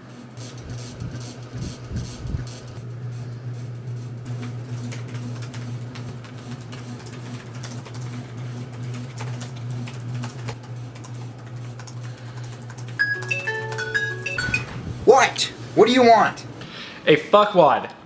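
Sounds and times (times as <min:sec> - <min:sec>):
steady low hum: 0:13.8 - 0:17.1.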